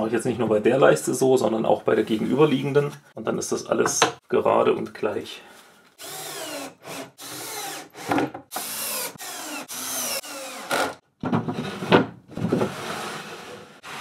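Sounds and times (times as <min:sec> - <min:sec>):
cordless drill driving screws: 0:06.0 - 0:11.0.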